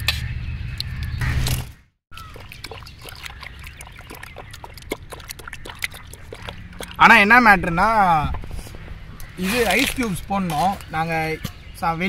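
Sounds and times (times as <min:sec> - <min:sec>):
faint liquid sounds: 0:02.1 - 0:07.3.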